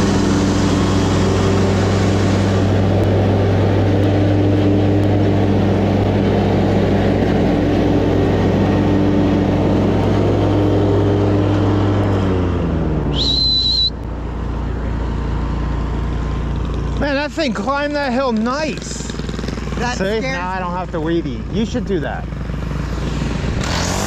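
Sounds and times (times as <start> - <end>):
lawn mower engine running: 0.0 - 24.0
short high whistle: 13.1 - 14.0.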